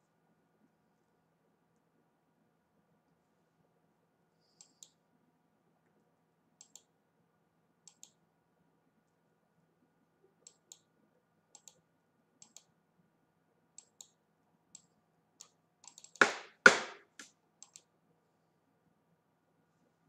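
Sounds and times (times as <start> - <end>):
computer mouse clicks: 4.5 - 5.0, 6.6 - 7.0, 7.8 - 8.2, 10.4 - 10.9, 11.5 - 12.8, 13.8 - 16.2, 17.2 - 17.9
loud knocks: 16.2 - 17.2.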